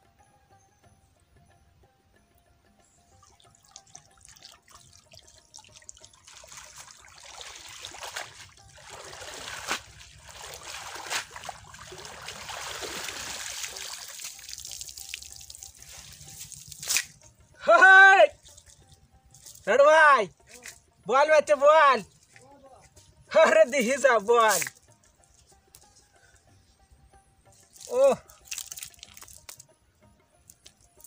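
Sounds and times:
water splashing and trickling: 2.8 - 26.7, 27.4 - 31.0.

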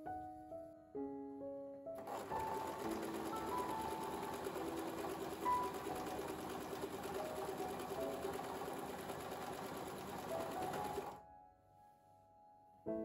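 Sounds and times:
electric sewing machine stitching: 2.0 - 11.2.

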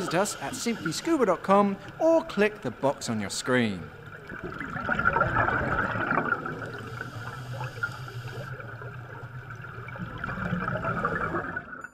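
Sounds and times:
underwater air bubbles: 3.8 - 11.9.

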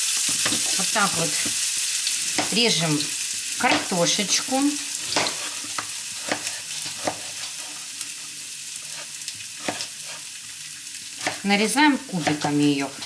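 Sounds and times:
potatoes sizzling in oil: 0.0 - 13.0
knife cutting on plastic board: 5.1 - 7.4, 8.9 - 10.2.

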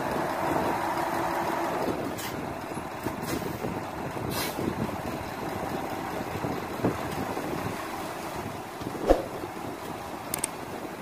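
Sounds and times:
diesel truck engine running: 0.0 - 11.0
short hisses: 9.0 - 9.4.

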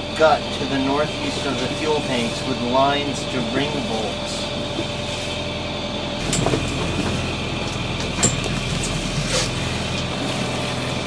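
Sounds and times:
knocks and rattles: 6.2 - 7.2.

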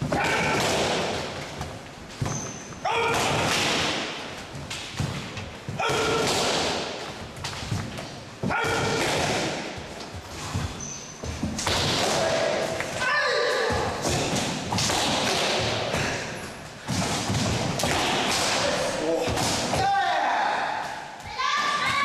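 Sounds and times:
karate shouts echoing: 0.0 - 1.1, 2.8 - 3.5, 5.7 - 6.5, 8.4 - 9.7, 11.9 - 14.4, 18.0 - 22.0.

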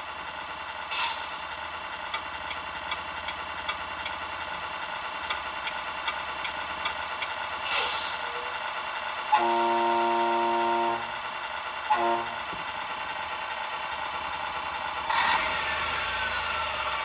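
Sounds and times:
simulated diesel engine idling: 0.0 - 17.0
multi-tone air horn: 9.3 - 11.1, 11.9 - 12.4.

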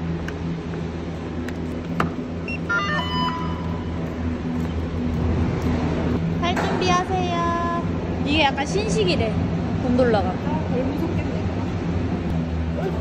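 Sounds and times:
machinery humming: 0.0 - 13.0
high electronic beep: 2.4 - 3.9.

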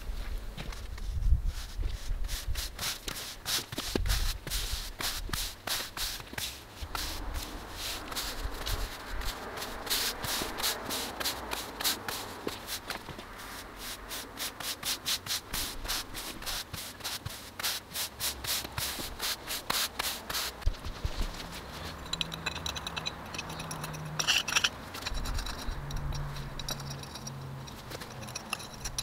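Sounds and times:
push broom sweeping paving: 1.0 - 25.0.

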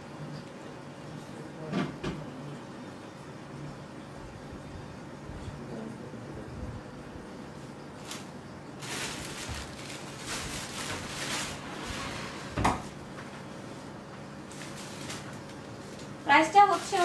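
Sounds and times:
fabric rustling: 8.0 - 13.8.

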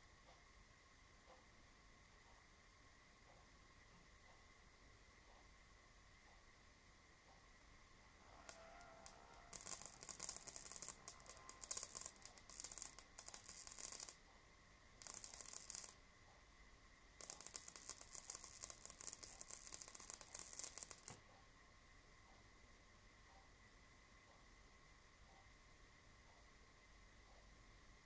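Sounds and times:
faint high whine: 0.0 - 28.0
high-voltage sparking crackle: 8.3 - 14.3, 15.0 - 16.0, 17.2 - 21.2.

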